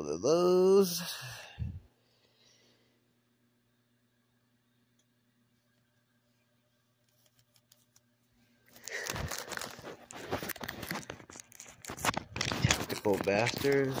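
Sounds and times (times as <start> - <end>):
foil wrapper crinkling and tearing: 8.7 - 14.0.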